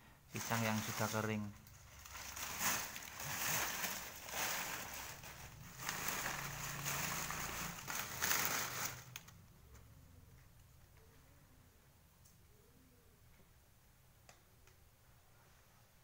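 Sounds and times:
dry leaves rustling and crackling: 0.4s - 9.3s.

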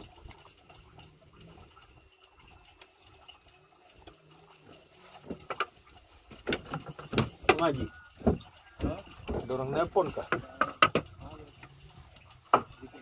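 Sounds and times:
fishing gear ticks and taps: 0.0s - 13.0s
knocks in wooden boat: 10.3s - 11.1s.

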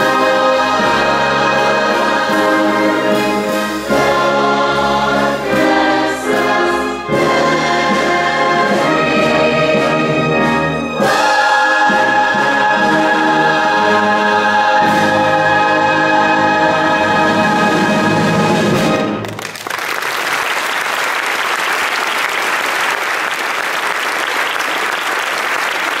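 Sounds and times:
choir and orchestra chord: 0.0s - 19.2s
audience applause: 19.2s - 26.0s.

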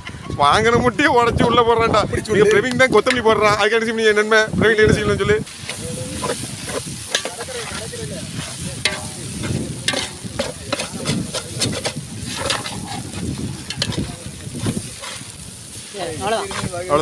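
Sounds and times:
food sizzling: 2.2s - 17.0s
ladle scraping metal pot: 5.5s - 17.0s.

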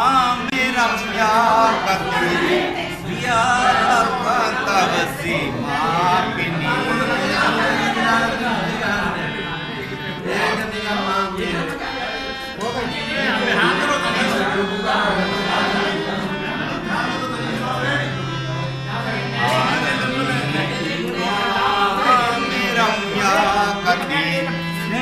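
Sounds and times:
harmonium holding low note: 0.0s - 25.0s
man singing: 0.0s - 25.0s.

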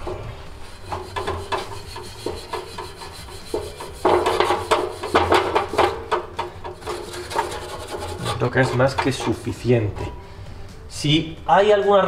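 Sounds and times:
scouring pad scrubbing copper pipe: 0.6s - 10.2s.

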